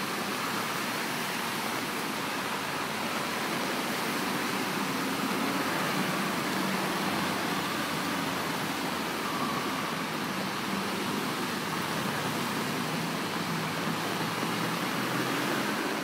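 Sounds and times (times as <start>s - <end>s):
heavy rain: 0.0s - 16.0s
running floodwater: 0.0s - 16.0s
tyres splashing through water: 0.0s - 16.0s
car engine hum passing: 10.6s - 16.0s.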